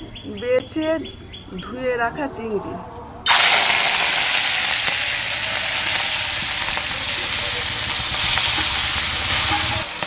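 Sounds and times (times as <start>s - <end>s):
shrimp sizzling in hot oil: 3.3s - 10.0s.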